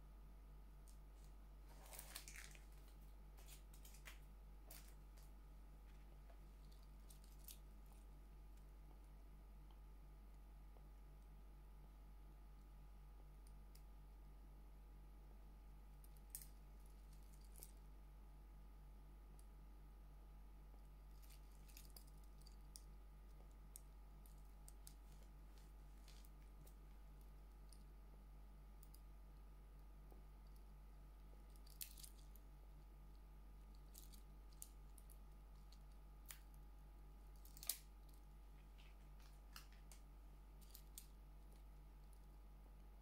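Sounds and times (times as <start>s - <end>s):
steady low hum: 0.0s - 43.0s
watch bracelet clicking and rattling: 6.6s - 8.0s, 16.0s - 17.8s, 21.1s - 25.2s, 31.4s - 32.4s, 33.7s - 36.6s, 37.3s - 38.3s.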